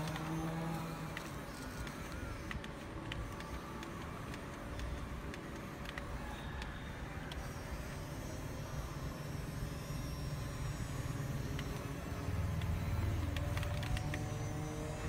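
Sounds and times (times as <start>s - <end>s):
faint clicks: 0.0s - 7.9s
electric motors humming: 0.0s - 15.0s.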